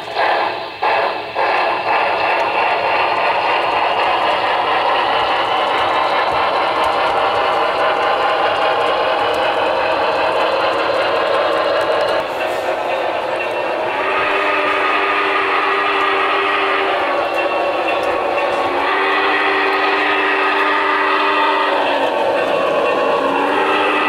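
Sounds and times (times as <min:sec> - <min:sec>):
model steam locomotive chuffing: 0:00.0 - 0:24.0.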